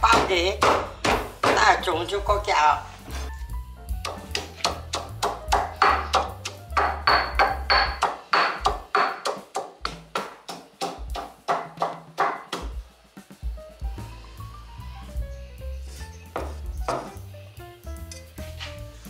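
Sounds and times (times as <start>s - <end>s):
knife chopping on cutting board: 4.1s - 12.8s, 16.4s - 17.2s.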